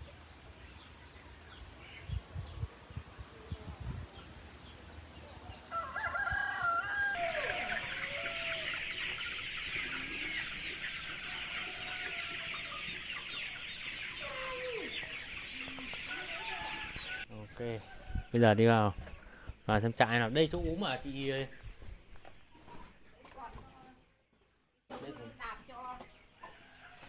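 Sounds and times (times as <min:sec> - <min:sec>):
chicks peeping and clucking: 0:00.0 - 0:27.0
rooster crowing: 0:05.7 - 0:09.0, 0:11.0 - 0:12.9, 0:14.2 - 0:17.3.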